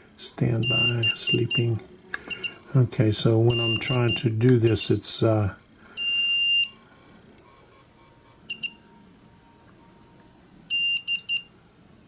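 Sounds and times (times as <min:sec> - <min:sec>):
buzzer beeps: 0:00.6 - 0:01.7, 0:02.3 - 0:02.6, 0:03.5 - 0:04.9, 0:06.0 - 0:06.8, 0:08.5 - 0:08.8, 0:10.7 - 0:11.5.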